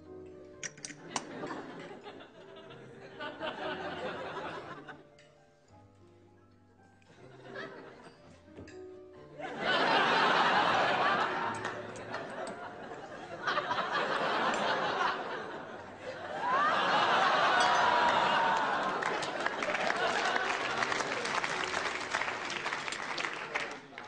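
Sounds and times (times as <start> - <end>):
soft background music: 0.0 - 24.0
studio audience laughing: 1.1 - 5.0, 7.4 - 8.1, 9.4 - 23.7.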